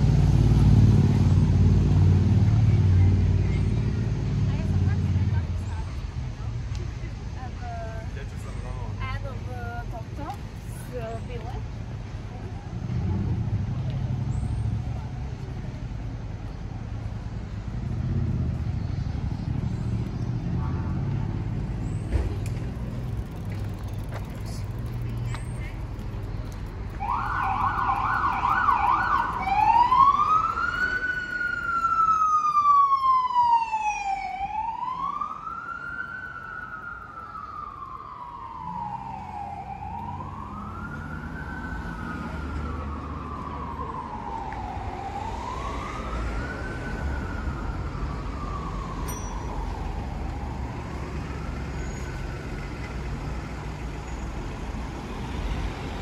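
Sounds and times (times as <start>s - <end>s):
emergency vehicle siren: 26.9s - 56.0s.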